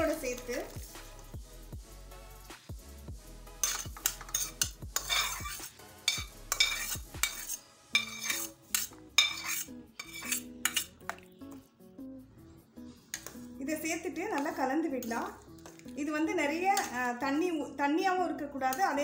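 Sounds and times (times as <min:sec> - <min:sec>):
steel utensils clinking and scraping: 0:03.6 - 0:11.2.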